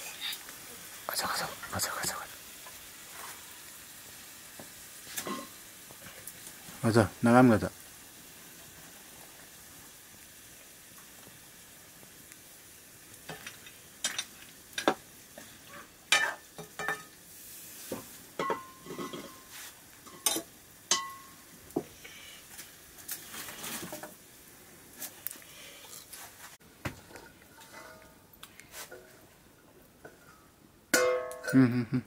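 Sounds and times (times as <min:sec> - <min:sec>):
light frying sizzle: 0:00.0 - 0:31.9.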